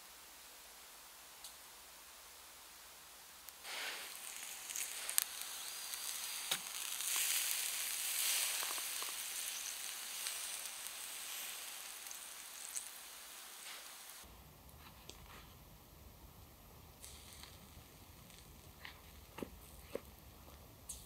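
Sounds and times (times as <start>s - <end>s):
meat sizzling on a grill: 3.4s - 14.3s, 16.8s - 21.0s
campfire clicks and crackles: 3.4s - 15.3s, 16.8s - 21.0s.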